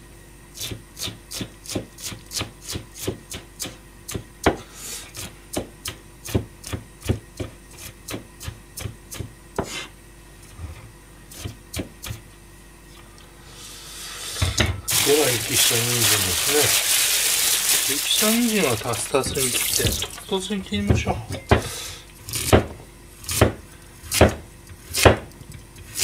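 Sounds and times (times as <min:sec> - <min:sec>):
knife chopping onion on board: 0:00.6 - 0:09.9, 0:11.3 - 0:12.3, 0:22.3 - 0:26.0.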